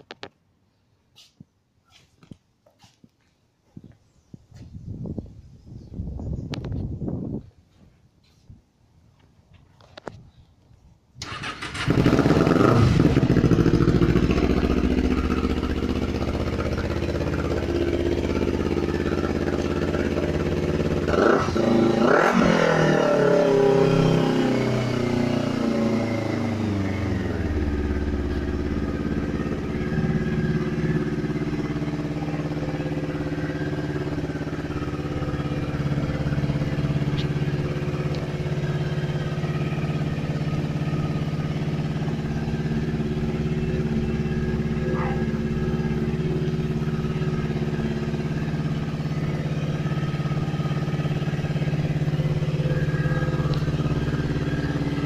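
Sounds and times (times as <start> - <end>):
motorcycle engine starting and revving: 11.2 - 55.0.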